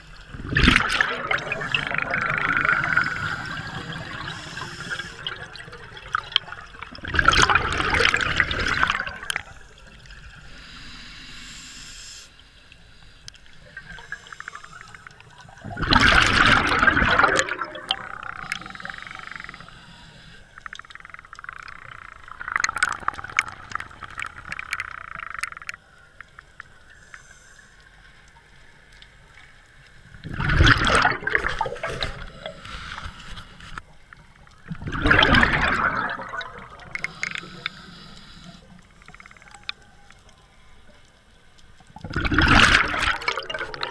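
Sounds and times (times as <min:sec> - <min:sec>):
exhaled bubbles gurgling underwater: 0:00.0 - 0:11.6, 0:13.5 - 0:26.7, 0:29.3 - 0:43.9
soft regulator hiss: 0:02.7 - 0:05.5, 0:09.1 - 0:15.6, 0:18.2 - 0:20.9, 0:26.7 - 0:29.2, 0:32.2 - 0:33.8, 0:36.9 - 0:39.7.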